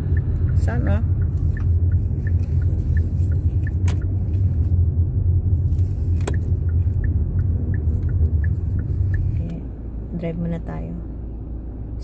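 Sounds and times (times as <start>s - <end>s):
light regular ticking: 0.0s - 4.5s, 5.3s - 9.6s
car cabin rumble: 0.0s - 11.2s.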